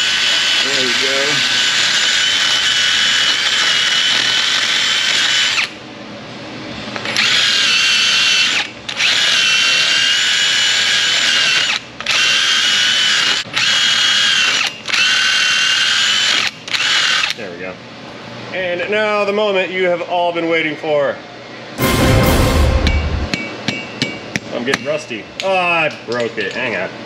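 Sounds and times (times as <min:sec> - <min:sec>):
drill grinding rust off metal: 0:00.0 - 0:05.8, 0:07.1 - 0:17.3.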